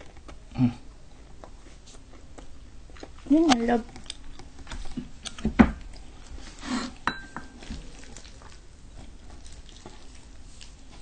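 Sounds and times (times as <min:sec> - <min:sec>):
utensils clinking on plates: 0:07.1 - 0:07.6.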